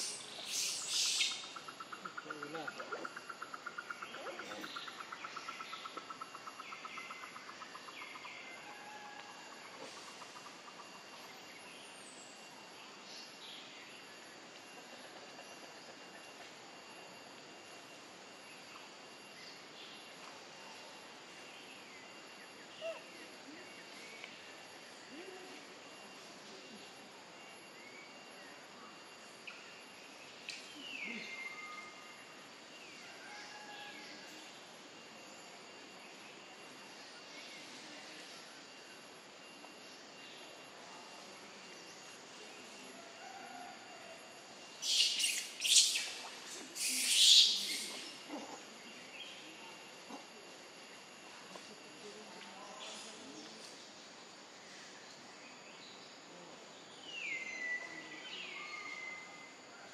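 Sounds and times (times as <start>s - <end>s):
faint whistled calls: 0.0s - 10.8s, 44.8s - 50.2s
steady background hiss: 0.0s - 59.9s.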